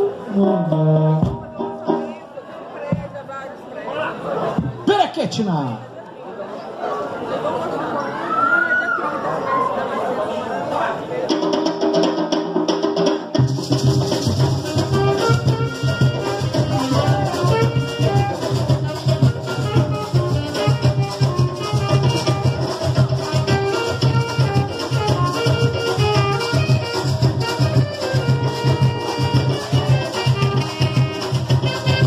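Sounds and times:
saxophone melody: 0:00.0 - 0:02.0, 0:14.5 - 0:32.0
log drums beating: 0:00.3 - 0:02.3, 0:11.3 - 0:32.0
maracas: 0:13.2 - 0:32.0.

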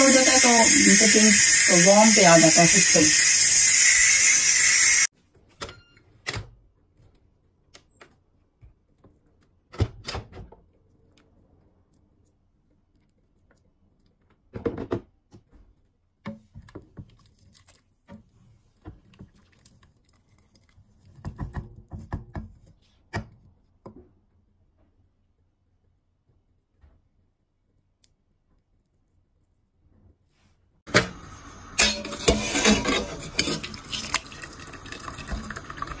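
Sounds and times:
loud hiss: 0:00.0 - 0:05.1.

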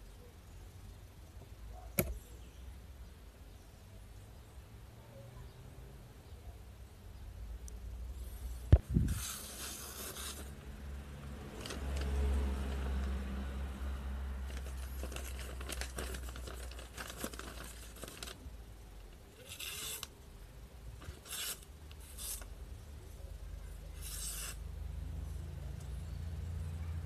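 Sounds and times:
knife cutting paper: 0:09.0 - 0:10.5, 0:19.4 - 0:20.1, 0:21.0 - 0:22.5, 0:23.9 - 0:24.6.

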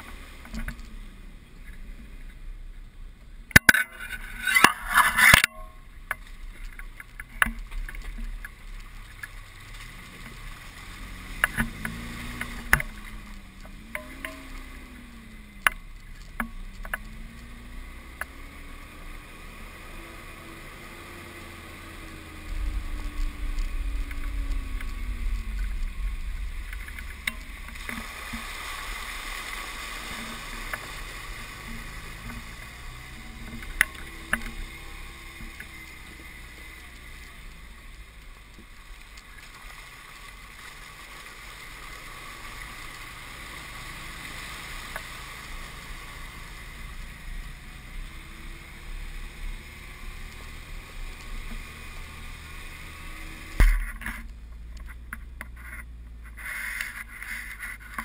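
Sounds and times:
off-road vehicle engine running: 0:00.0 - 0:58.0
tyres rolling through mud: 0:00.0 - 0:58.0.

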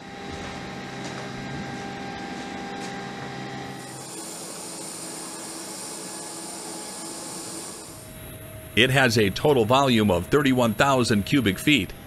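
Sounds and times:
aircraft machinery hum and hiss: 0:00.0 - 0:12.0
faint high whine: 0:03.6 - 0:12.0.

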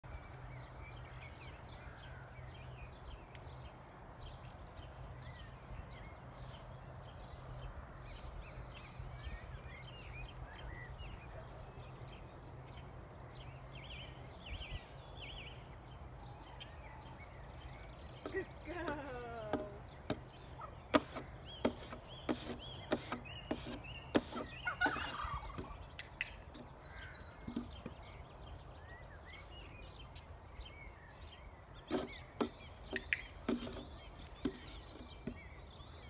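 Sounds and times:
pony steps on grass: 0:00.0 - 0:36.0
small birds chirping: 0:00.0 - 0:36.0
hoof knocking on wooden board: 0:19.4 - 0:20.3, 0:20.9 - 0:25.8, 0:27.4 - 0:28.0.

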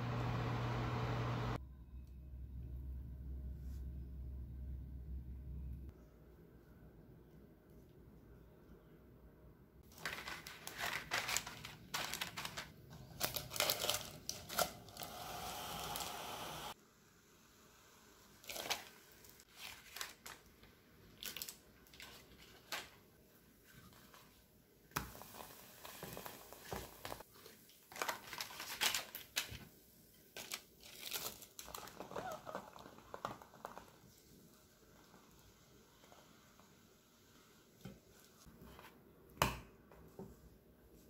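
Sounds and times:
crinkling: 0:09.8 - 0:15.1, 0:18.4 - 0:23.0, 0:26.5 - 0:34.3.

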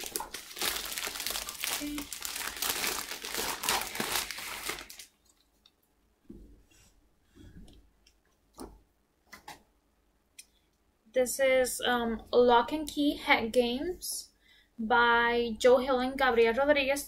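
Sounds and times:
comic books crinkling and rustling: 0:00.0 - 0:05.6.

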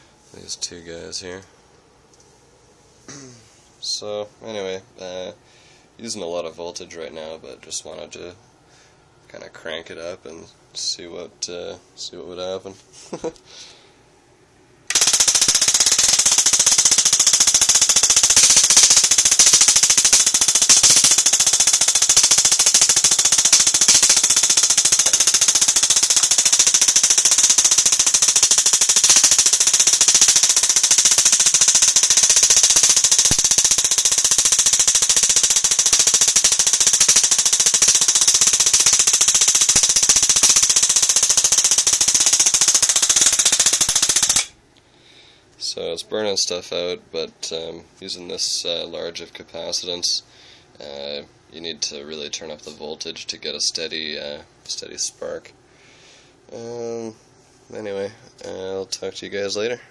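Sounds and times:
crackle of electric sparks: 0:14.9 - 0:44.6.

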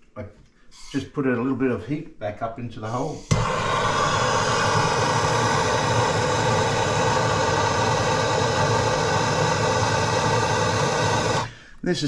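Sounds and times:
propane torch flame rushing: 0:03.3 - 0:11.5.

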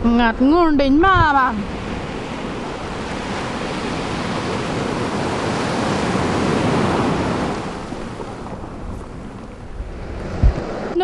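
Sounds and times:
ocean wave breaking: 0:01.3 - 0:11.0.

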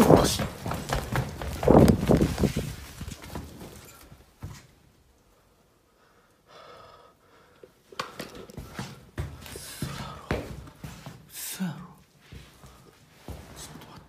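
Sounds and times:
footsteps on wooden floor: 0:00.0 - 0:04.8, 0:08.0 - 0:11.3, 0:12.2 - 0:14.0
faint breath: 0:05.2 - 0:10.5.

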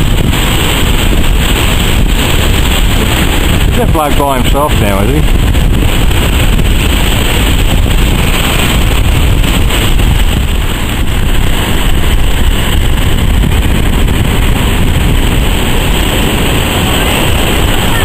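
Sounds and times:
heavy surf breaking: 0:00.0 - 0:18.0
wind buffeting microphone: 0:00.0 - 0:18.0.

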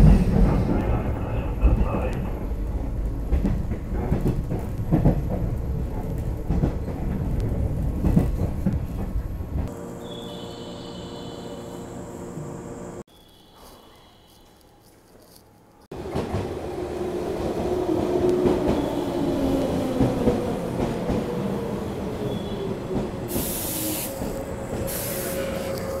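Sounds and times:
train wheels rumbling on rail: 0:00.0 - 0:09.8, 0:15.9 - 0:26.0.

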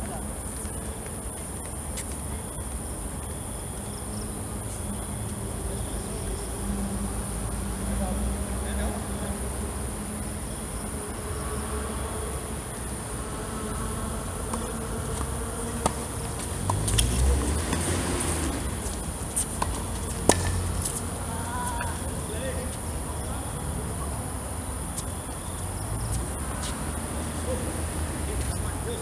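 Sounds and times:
insect chorus: 0:00.0 - 0:29.0
tennis ball struck: 0:14.5 - 0:17.0, 0:19.3 - 0:21.0.

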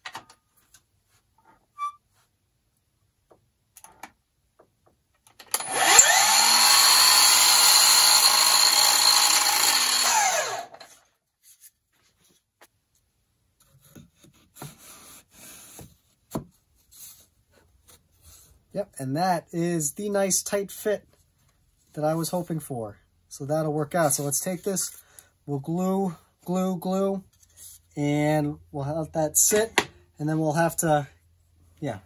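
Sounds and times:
miter saw cutting: 0:05.5 - 0:11.0.

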